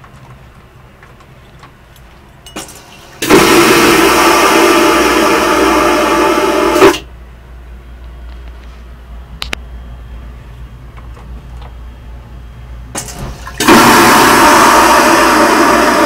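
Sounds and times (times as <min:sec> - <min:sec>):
vacuum toilet rushing suction: 0:02.8 - 0:07.1, 0:13.2 - 0:16.0.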